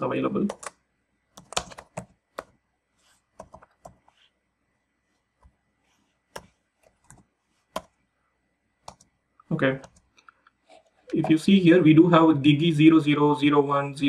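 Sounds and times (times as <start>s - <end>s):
computer keyboard keystrokes: 0.5s - 0.8s, 1.4s - 2.5s.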